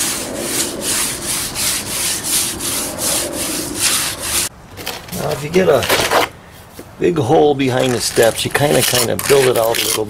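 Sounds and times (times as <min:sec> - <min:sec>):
sponge scrubbing cement: 0:00.0 - 0:04.5.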